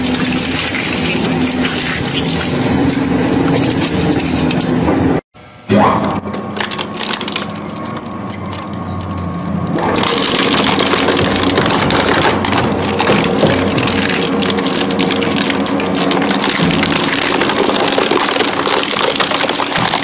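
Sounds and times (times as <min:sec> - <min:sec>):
plastic cracking and crunching: 0:09.8 - 0:20.0.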